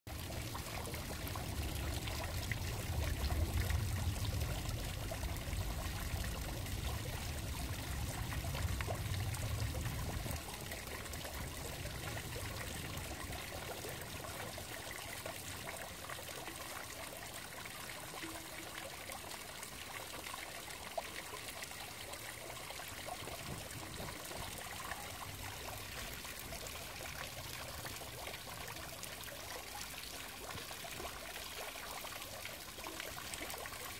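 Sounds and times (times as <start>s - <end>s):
water trickling: 0.1s - 33.9s.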